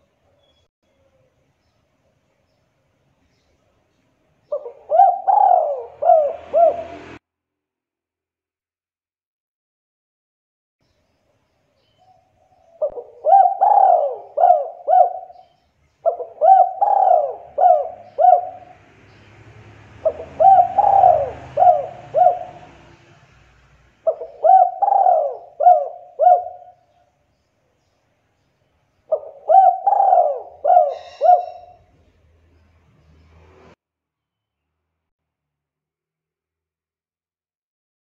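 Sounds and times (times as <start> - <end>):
dove cooing: 4.5 - 7.2, 12.5 - 18.8, 20.0 - 23.0, 24.0 - 26.8, 29.1 - 31.9.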